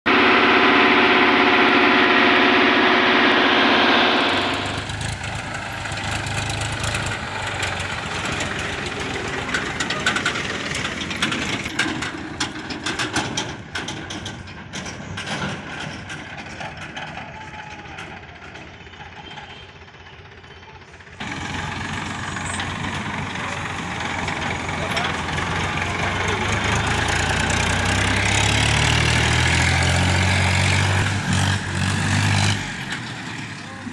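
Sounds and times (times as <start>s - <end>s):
tractor engine running: 0.1s - 33.9s
sharp knocks and rattles: 4.8s - 18.8s.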